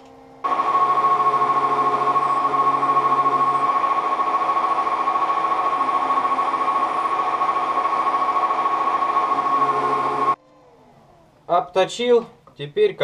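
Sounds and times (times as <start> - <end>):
high machine whine: 0.0 - 10.4
metal lathe running: 0.4 - 10.4.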